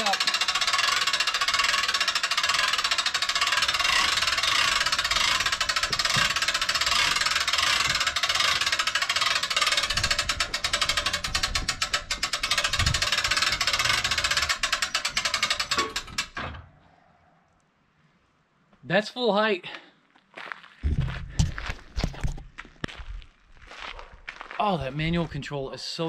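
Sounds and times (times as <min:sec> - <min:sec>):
winch ratchet clicking: 0:00.0 - 0:16.4
low knocks: 0:20.8 - 0:21.7.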